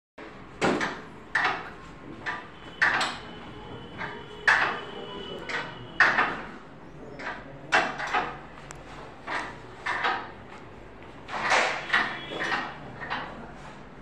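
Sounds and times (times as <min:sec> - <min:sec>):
sharp knocks and clinks on metal: 0:07.2 - 0:08.5.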